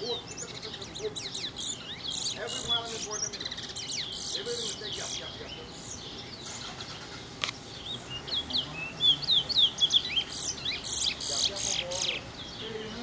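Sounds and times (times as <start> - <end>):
songbird chirping and whistling: 0.0 - 13.0
sharp click: 7.4 - 7.6.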